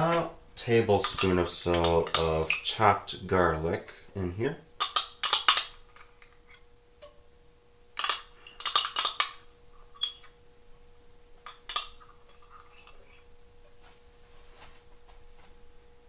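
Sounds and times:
glass jar clinking: 0:01.0 - 0:02.7, 0:08.0 - 0:10.4, 0:11.5 - 0:13.0.

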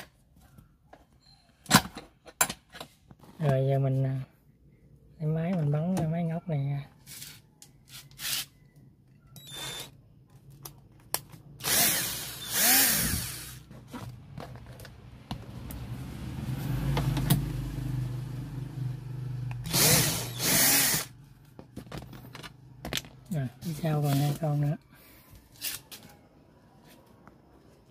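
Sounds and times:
cordless drill spinning bolts: 0:09.4 - 0:09.9, 0:11.6 - 0:13.6, 0:19.6 - 0:21.1.

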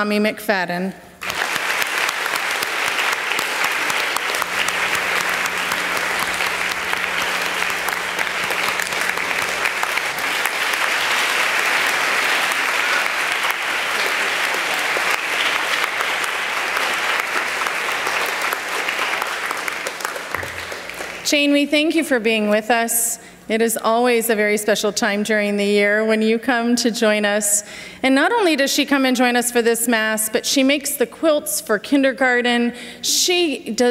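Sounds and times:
audience applauding: 0:01.2 - 0:21.3.

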